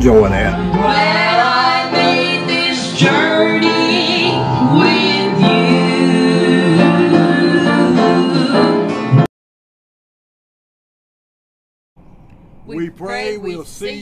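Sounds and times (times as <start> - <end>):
instrumental accompaniment: 0.0 - 9.3
woman singing into a microphone: 0.8 - 8.9.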